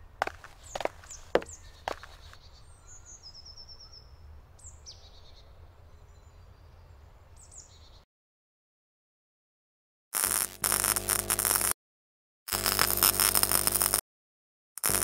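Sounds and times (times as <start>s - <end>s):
small birds calling: 0.0s - 8.0s.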